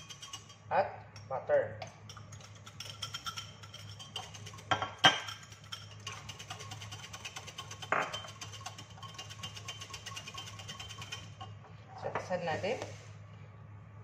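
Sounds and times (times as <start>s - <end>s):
glass bowl clinking jug: 0.0s - 0.6s, 1.8s - 11.5s
utensil beating in jug: 1.9s - 11.4s.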